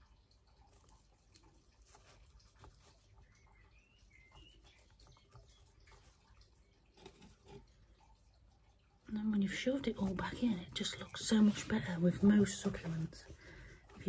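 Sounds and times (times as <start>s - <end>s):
faint high chirp: 2.8s - 6.2s
stick scraping in potting soil: 9.8s - 14.0s.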